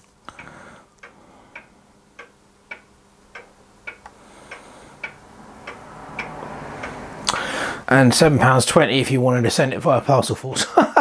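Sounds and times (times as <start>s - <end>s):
faint steady hum: 0.0s - 11.0s
mechanical tick-tock: 0.3s - 7.4s.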